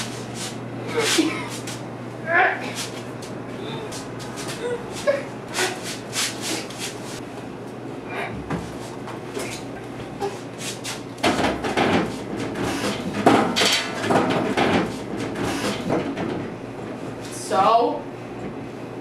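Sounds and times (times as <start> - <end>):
scuffling knocks and thumps: 8.4 - 9.6.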